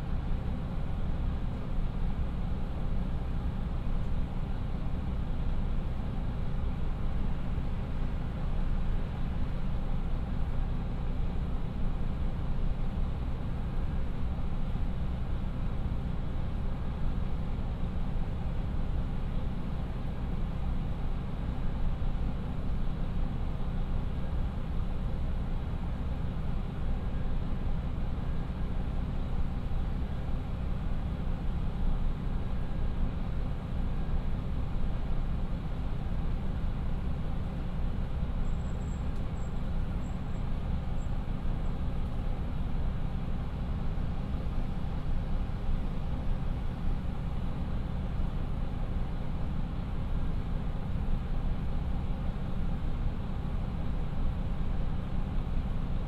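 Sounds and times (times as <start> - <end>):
diesel railcar engines idling: 0.0 - 56.0.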